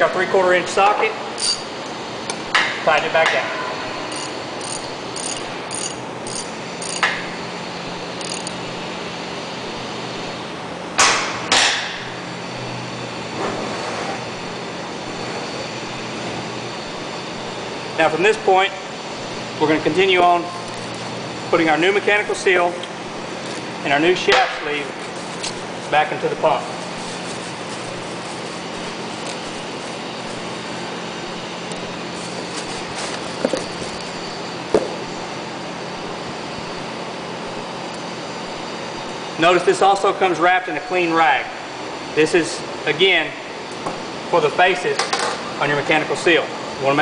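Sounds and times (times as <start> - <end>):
steady hum: 0.0 - 47.0
impact wrench bursts: 4.1 - 7.2, 8.2 - 8.6.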